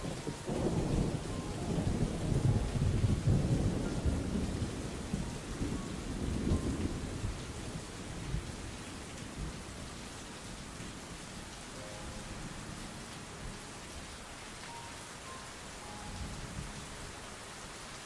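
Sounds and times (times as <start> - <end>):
low rumble of thunder: 0.0 - 11.2
steady rain: 0.0 - 18.0.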